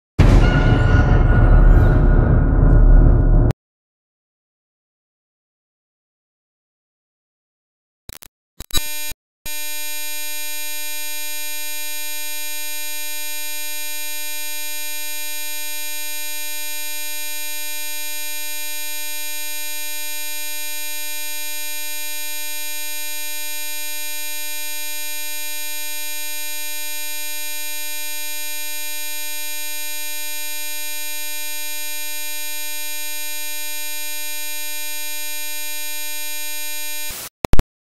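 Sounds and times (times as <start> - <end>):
steady electronic buzz: 33.0 - 37.3.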